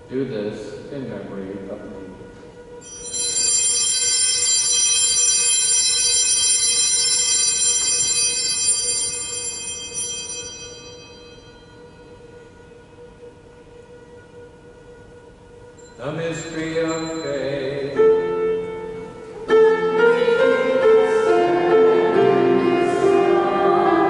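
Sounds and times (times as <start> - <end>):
small bells shaken: 2.8 - 11.8.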